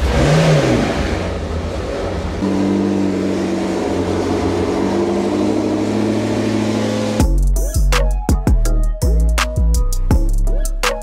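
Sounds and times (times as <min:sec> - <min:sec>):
car engine idling: 0:01.1 - 0:07.6.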